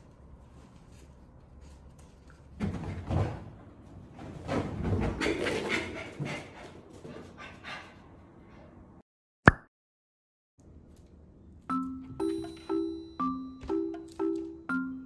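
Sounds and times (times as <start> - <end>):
chiming mallet percussion tune: 11.7 - 15.0.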